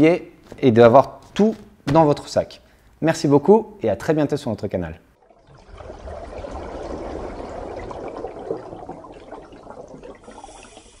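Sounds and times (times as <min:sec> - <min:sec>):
rushing pouring water: 0:05.2 - 0:11.0.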